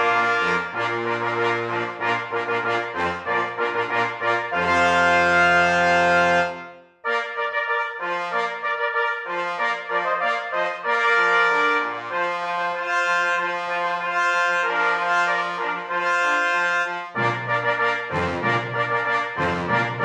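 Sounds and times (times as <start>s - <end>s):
brass music playing held chords: 0.0s - 20.0s.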